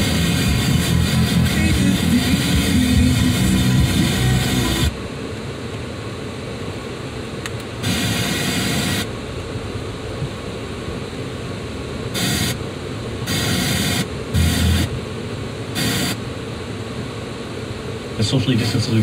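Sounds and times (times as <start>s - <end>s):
car interior noise: 0.0s - 19.0s
bursts of hiss: 7.8s - 9.1s, 12.2s - 12.6s, 13.3s - 14.9s, 15.8s - 16.2s.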